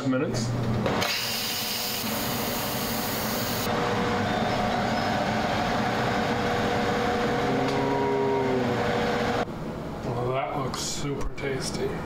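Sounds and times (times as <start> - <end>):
range hood fan running: 0.0 - 12.0.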